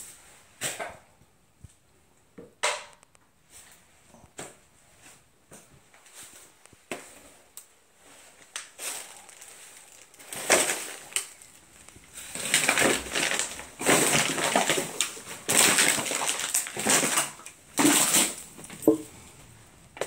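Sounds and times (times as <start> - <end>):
plastic bags rustling and crunching: 6.1 - 19.3.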